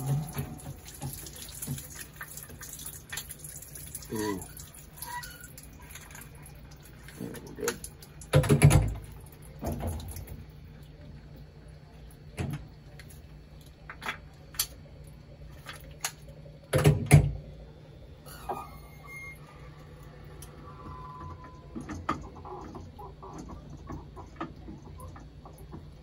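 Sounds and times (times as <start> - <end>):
honing machine humming: 0.0 - 1.4, 17.6 - 23.1.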